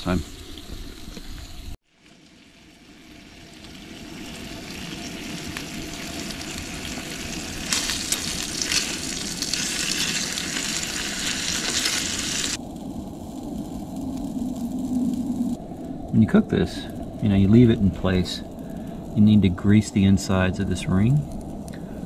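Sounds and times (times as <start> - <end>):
eggs sizzling in a pan: 0.0 - 15.8.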